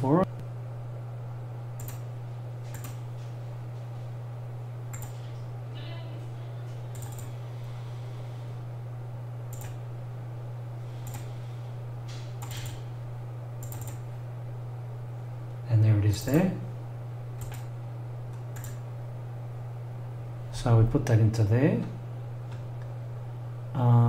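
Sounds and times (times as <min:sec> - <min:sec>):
low electrical hum: 0:00.0 - 0:24.0
computer mouse clicks: 0:01.8 - 0:02.0, 0:02.7 - 0:03.0, 0:04.9 - 0:05.2, 0:06.9 - 0:07.3, 0:09.5 - 0:09.8, 0:11.0 - 0:11.3, 0:13.6 - 0:14.0, 0:17.4 - 0:17.7, 0:18.3 - 0:18.8.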